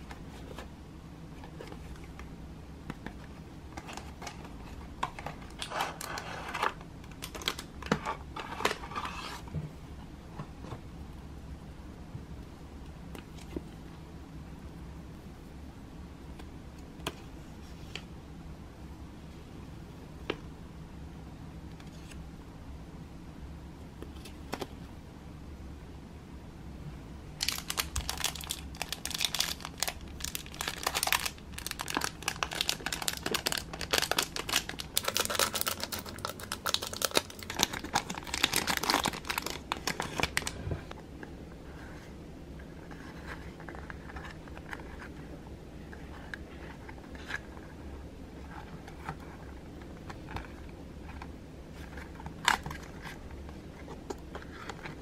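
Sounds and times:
handling small paper box: 27.4 - 40.6
plastic bag crinkling: 27.4 - 40.6.

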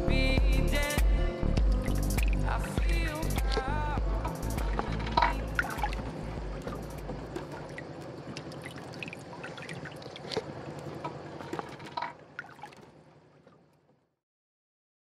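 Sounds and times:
trickling drips: 1.7 - 2.6, 4.2 - 13.9
sea water lapping: 1.7 - 14.0.

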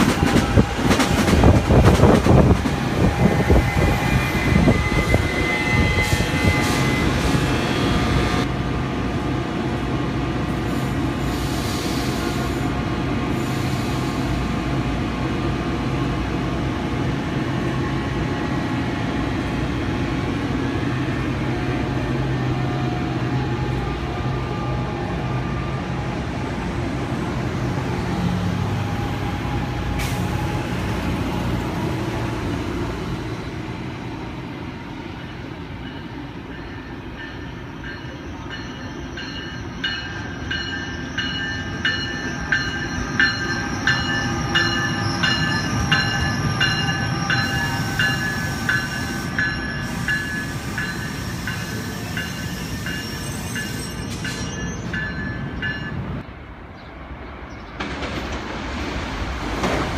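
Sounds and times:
electric train rumble and hum: 0.0 - 59.9.

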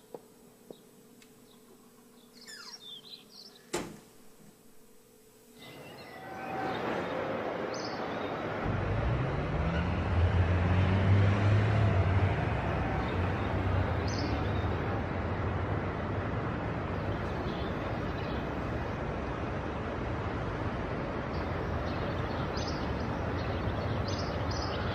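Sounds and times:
outdoor background noise: 0.0 - 24.9
vehicle engine humming: 5.9 - 24.8.

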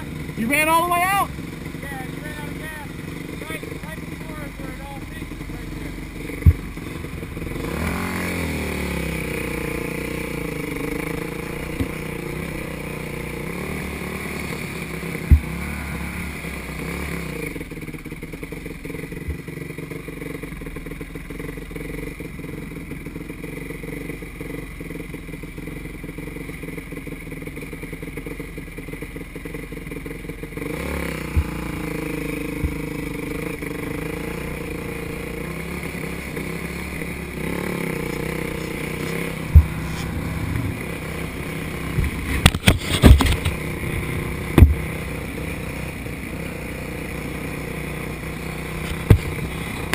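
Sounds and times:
dirt bike engine revving: 0.0 - 49.9
sharp knocks: 6.4 - 6.8, 15.2 - 15.6, 39.4 - 41.0, 44.6 - 44.8.

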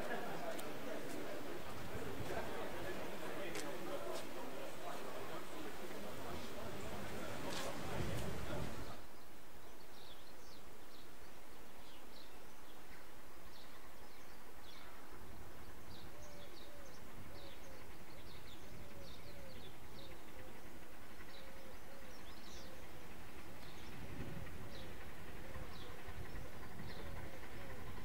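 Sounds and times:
birds chirping: 0.0 - 28.0.

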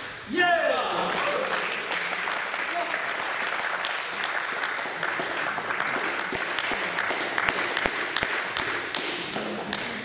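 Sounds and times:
noisy hall background: 0.0 - 10.0.

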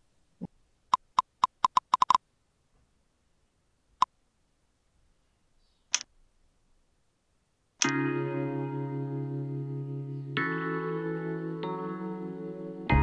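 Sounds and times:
computer mouse clicks: 0.9 - 2.2.

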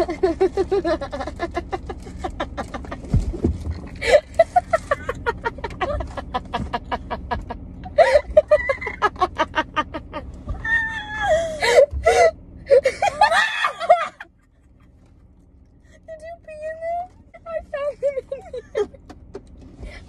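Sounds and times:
women laughing hysterically: 0.0 - 3.1, 4.0 - 14.5, 18.0 - 19.0.

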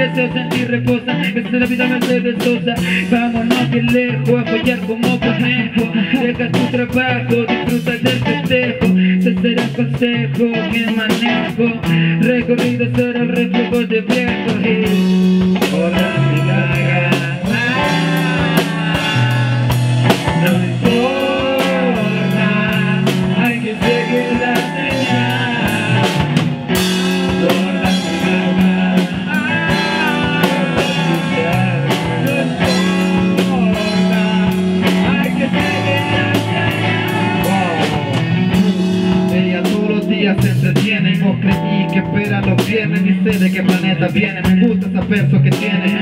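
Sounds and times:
rock band playing: 0.0 - 46.0
bending guitar lines: 13.5 - 42.3.

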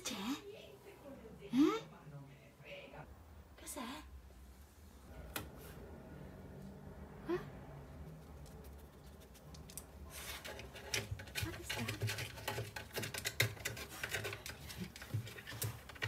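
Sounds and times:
dog scratching at wooden floor: 8.1 - 16.0.

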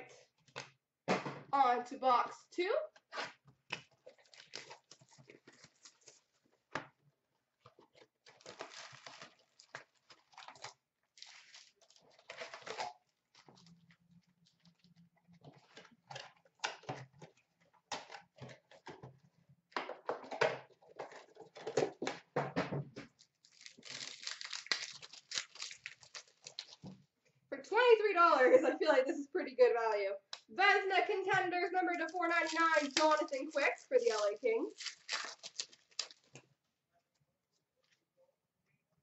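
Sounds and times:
plastic wrapping tearing and crinkling: 4.1 - 6.2, 7.9 - 14.9, 23.2 - 26.9, 32.1 - 36.4.

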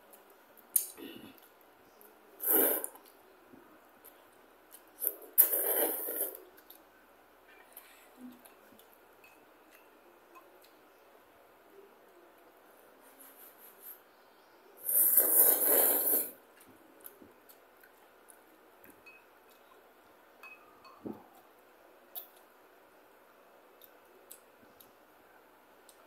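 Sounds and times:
loud noodle slurp: 2.4 - 3.0, 5.0 - 6.4, 14.8 - 16.4.

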